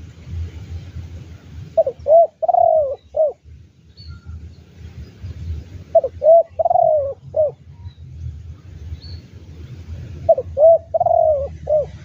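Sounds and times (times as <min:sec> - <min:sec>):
dove cooing: 0:01.8 - 0:03.4, 0:05.9 - 0:07.6, 0:10.2 - 0:12.0.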